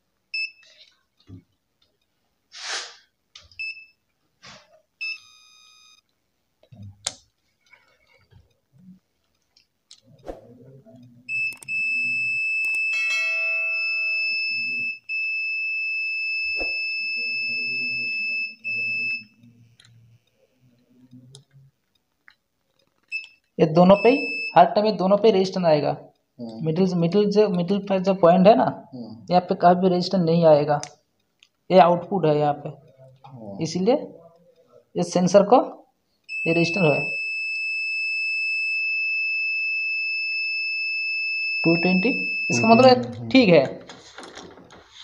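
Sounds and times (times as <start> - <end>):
short meter beeps: 0.4 - 0.8, 3.6 - 4.0, 5.0 - 6.0, 11.3 - 15.6, 16.3 - 19.4, 23.1 - 24.6, 36.3 - 38.4, 41.4 - 43.1
high continuity tone: 4.4 - 15.1, 41.6 - 45.0.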